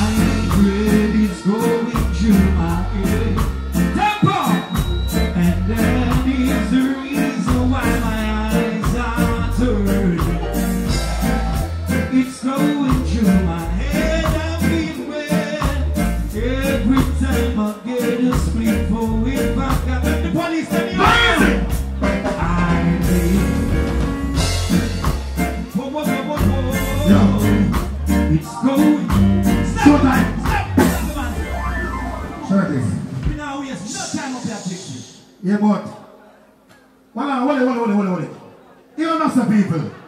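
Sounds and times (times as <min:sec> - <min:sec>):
man singing into a microphone: 0:00.0 - 0:24.0, 0:25.6 - 0:31.4
live reggae music: 0:00.0 - 0:40.0.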